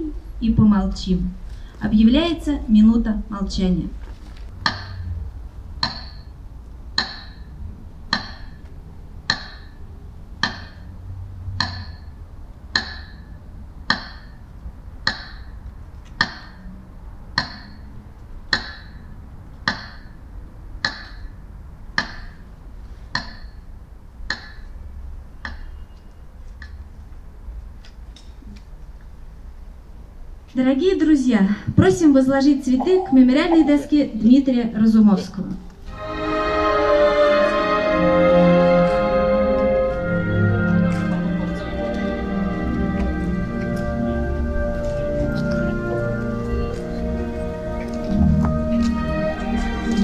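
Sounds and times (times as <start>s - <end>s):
metronome ticking: 5.8s - 6.3s, 7.0s - 7.4s, 8.1s - 8.6s, 9.3s - 9.8s, 10.4s - 10.8s, 11.6s - 12.0s.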